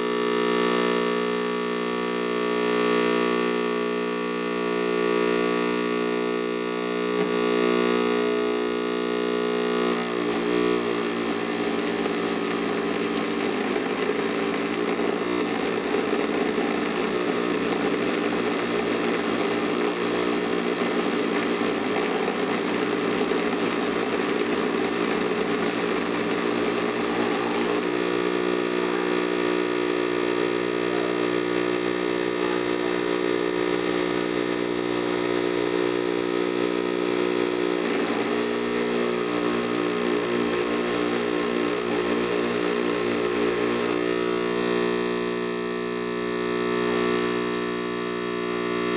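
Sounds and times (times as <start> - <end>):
electronic glitch buzzing: 0.0 - 3.6, 4.2 - 48.9.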